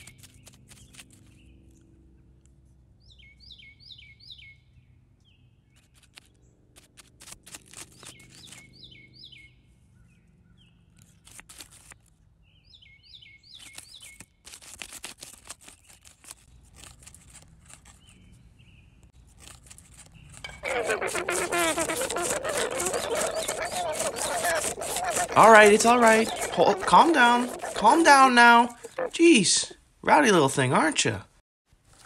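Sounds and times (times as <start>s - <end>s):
dry crackling clicks and rustles: 0.0s - 1.4s, 5.7s - 8.8s, 11.0s - 12.2s, 13.5s - 18.2s, 19.1s - 29.2s
bird whistling song: 3.0s - 5.4s, 8.1s - 10.7s, 12.5s - 14.2s.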